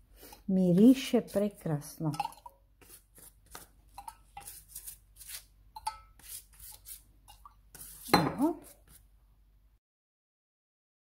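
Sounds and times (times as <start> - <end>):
pastry brush strokes on crust: 2.8 - 3.8, 4.4 - 5.5, 7.7 - 9.1.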